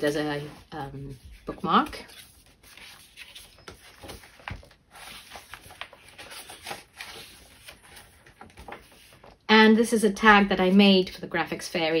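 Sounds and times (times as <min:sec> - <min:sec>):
paper pages rustling: 0:00.0 - 0:09.5.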